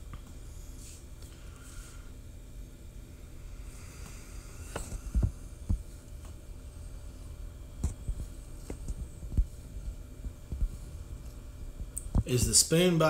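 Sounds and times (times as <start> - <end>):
steady low hum: 0.0 - 13.0
soft low handling thumps: 4.8 - 6.3, 7.7 - 12.3.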